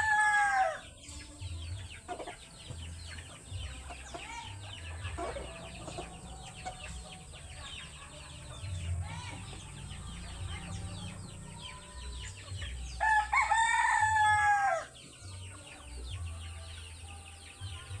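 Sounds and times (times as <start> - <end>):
rooster crowing: 0.0 - 0.8, 13.0 - 14.9.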